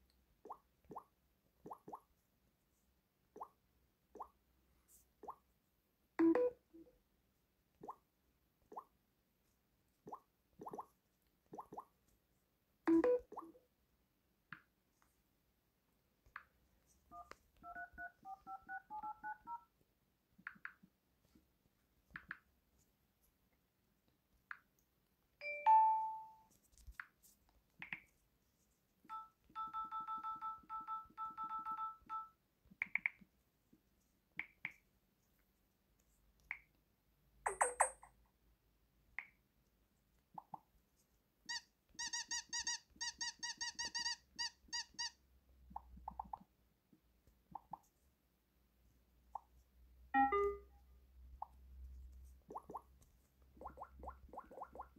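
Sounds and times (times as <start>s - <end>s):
electronic phone beeps and blips: 6.2s - 6.6s, 12.9s - 13.5s, 17.1s - 19.7s, 29.1s - 32.4s, 50.2s - 50.7s
dial-pad key tones: 17.1s - 19.7s, 29.1s - 32.4s, 50.2s - 50.6s.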